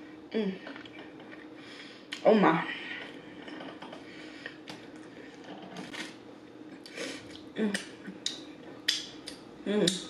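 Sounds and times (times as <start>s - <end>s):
lip smacks: 6.8s - 10.0s.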